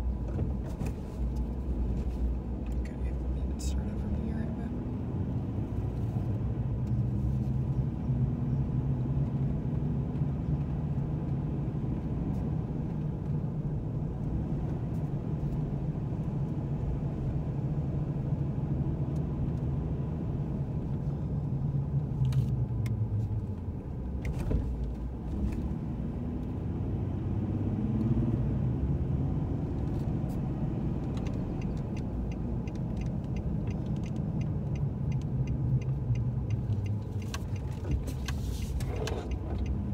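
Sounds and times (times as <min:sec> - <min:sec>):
car engine and road noise: 0:00.0 - 0:39.9.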